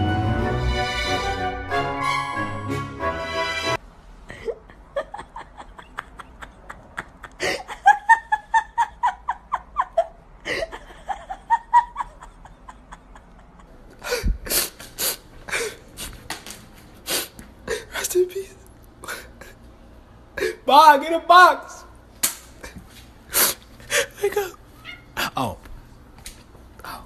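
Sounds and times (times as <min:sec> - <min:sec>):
person laughing: 0:04.3 - 0:14.7.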